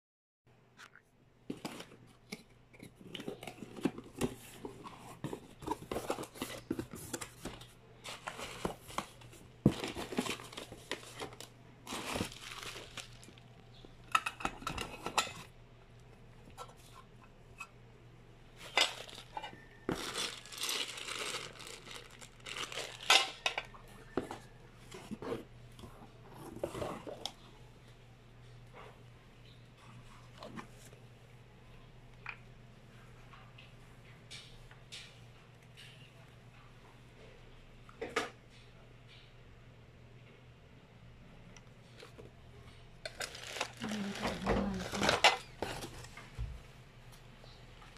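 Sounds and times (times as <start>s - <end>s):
plastic wrapping crinkling: 3.2s - 13.6s, 18.6s - 24.2s, 43.0s - 46.2s.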